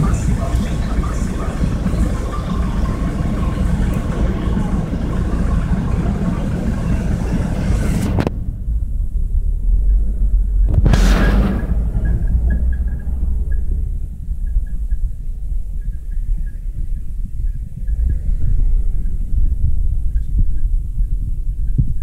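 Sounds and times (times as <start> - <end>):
low traffic rumble: 0.0 - 22.0
short burst of noise: 10.7 - 12.6.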